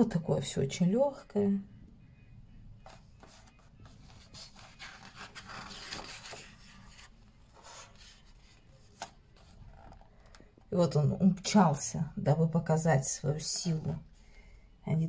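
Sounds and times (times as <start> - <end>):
page turning: 2.8 - 10.4
paper rustling: 2.8 - 10.4.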